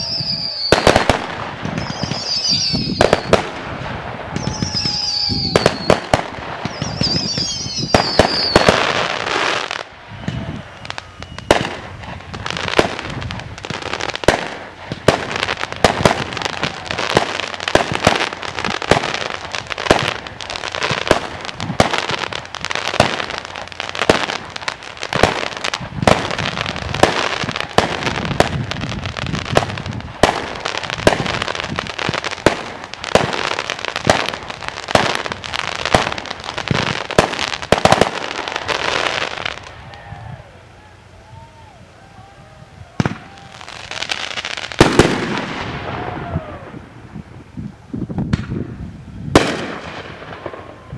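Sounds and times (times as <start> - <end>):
falling firework whistle: 0.0 - 47.0
firework crackling: 0.0 - 50.9
firework shells bursting: 0.4 - 9.5.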